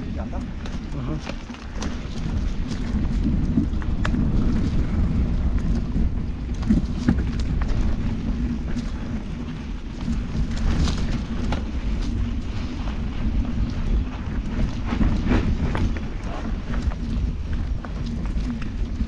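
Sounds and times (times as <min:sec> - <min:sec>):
bike clicks and rattles on bumps: 0:00.0 - 0:19.0
bike tyres rumbling on dirt trail: 0:00.0 - 0:19.0.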